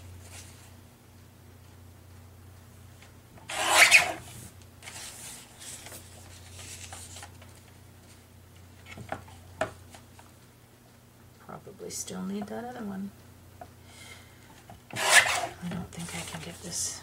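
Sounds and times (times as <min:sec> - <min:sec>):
paper sheets sliding and rubbing: 0:03.5 - 0:07.3.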